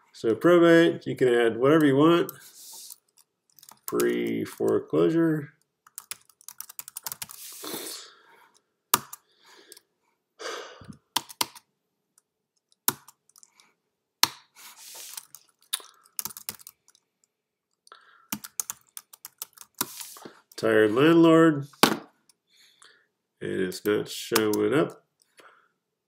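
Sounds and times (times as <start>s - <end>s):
computer keyboard typing: 2.9s - 4.8s, 5.9s - 7.4s, 11.1s - 11.6s, 12.6s - 13.6s, 15.1s - 17.0s, 18.3s - 20.0s, 24.3s - 24.7s.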